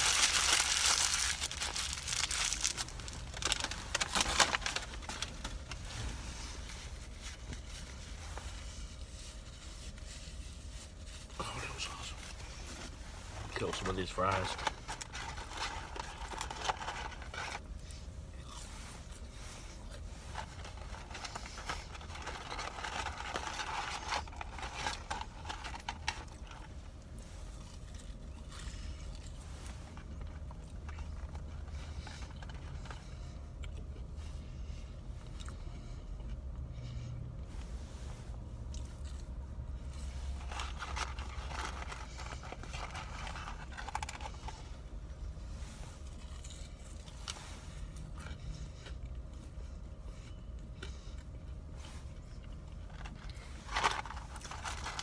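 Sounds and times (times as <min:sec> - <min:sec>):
paper carton rustling: 0:00.0 - 0:06.2, 0:12.9 - 0:17.7, 0:20.0 - 0:26.5, 0:53.0 - 0:55.0
low rumble inside vehicle: 0:00.0 - 0:55.0.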